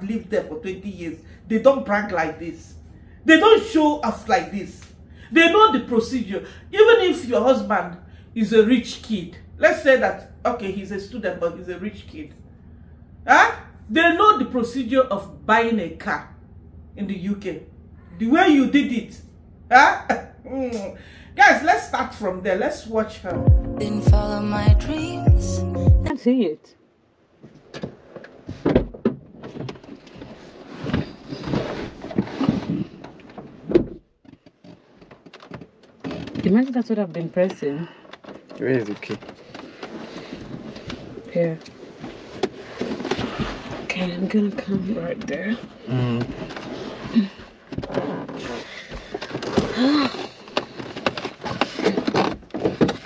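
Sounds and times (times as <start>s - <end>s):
knocks and rustling: 27.4s - 53.0s.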